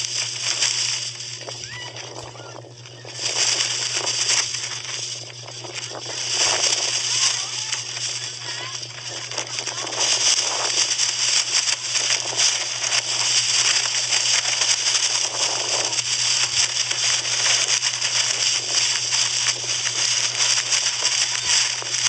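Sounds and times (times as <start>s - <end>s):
plastic kite skin crackling: 0.0s - 22.0s
steady low hum: 0.0s - 22.0s
wind rushing over microphone: 0.0s - 22.0s.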